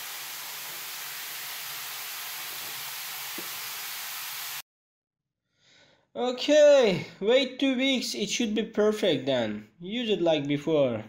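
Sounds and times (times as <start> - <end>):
foam fizzing in drain: 0.0 - 4.6.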